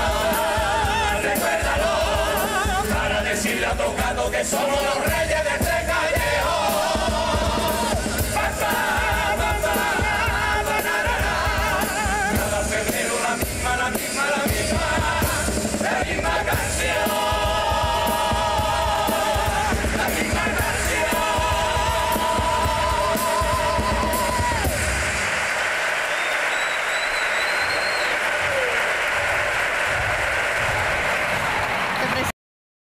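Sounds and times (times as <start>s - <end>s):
men singing in harmony: 0.0s - 24.7s
drums: 0.0s - 32.3s.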